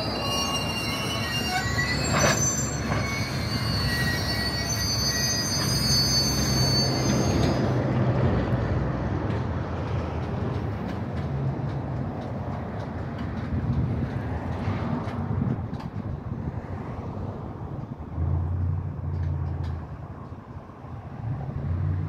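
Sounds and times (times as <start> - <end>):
wheels squealing on rail: 0.0 - 7.9
rumble of wheels on track: 0.0 - 22.0.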